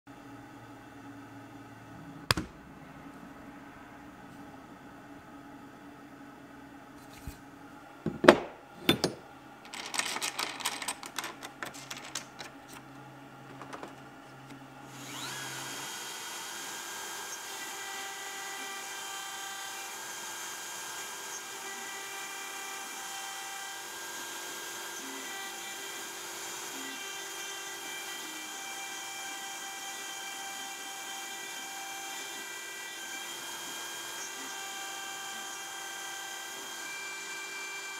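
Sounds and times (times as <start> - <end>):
rattling clicks: 8.9 - 12.6
router spindle whining: 9.7 - 37.9
engraving bit carving brass: 14.9 - 37.9.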